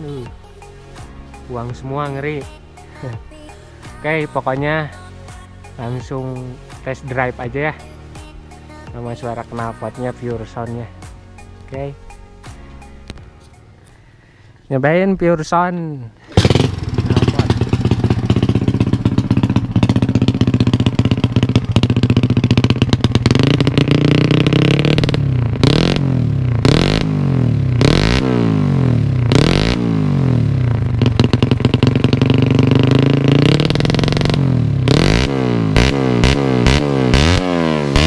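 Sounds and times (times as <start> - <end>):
motorcycle engine idling and revving: 0.0 - 4.9, 16.2 - 38.0.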